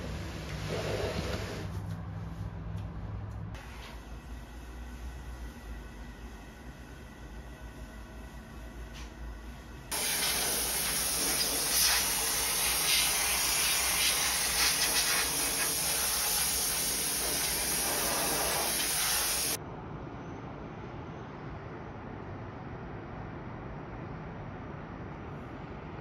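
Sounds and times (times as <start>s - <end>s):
loud steady hiss: 9.7s - 19.6s.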